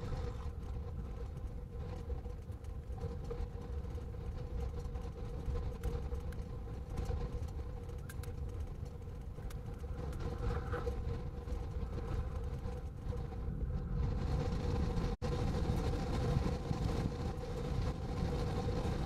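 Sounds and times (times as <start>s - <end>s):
faint clicks: 4.6s - 13.1s.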